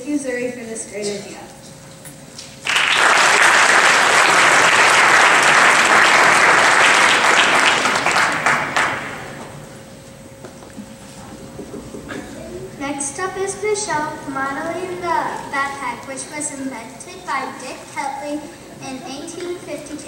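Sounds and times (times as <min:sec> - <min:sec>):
children applauding: 0:02.6 - 0:09.5.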